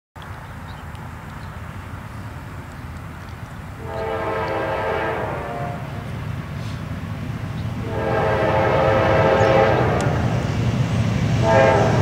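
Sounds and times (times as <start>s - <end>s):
locomotive air horn: 3.8s - 6.8s, 7.8s - 10.3s, 11.4s - 12.0s.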